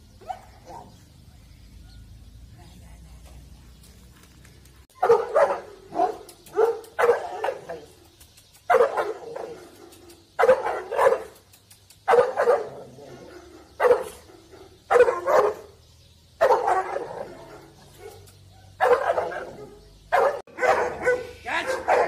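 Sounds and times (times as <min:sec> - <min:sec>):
large dog barking: 0:00.2 - 0:02.1, 0:05.0 - 0:07.9, 0:08.7 - 0:11.4, 0:12.1 - 0:15.8, 0:16.4 - 0:22.0.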